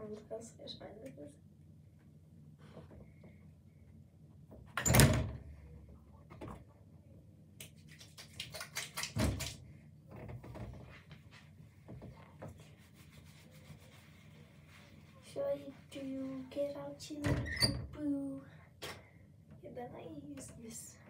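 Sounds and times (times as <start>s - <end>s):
wet hands clicking in hair: 7.6s - 9.6s.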